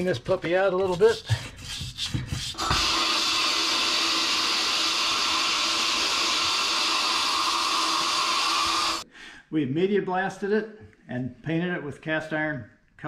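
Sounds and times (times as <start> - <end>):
hiss of air and grit blasting: 2.6 - 9.0.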